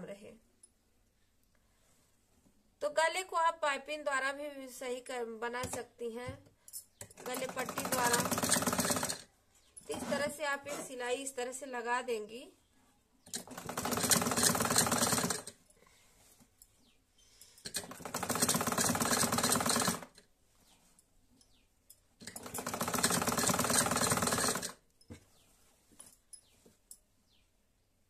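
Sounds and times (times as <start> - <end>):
sewing machine stitching: 7.2 - 9.3, 9.9 - 10.8, 13.3 - 15.6, 17.7 - 20.2, 22.2 - 24.8.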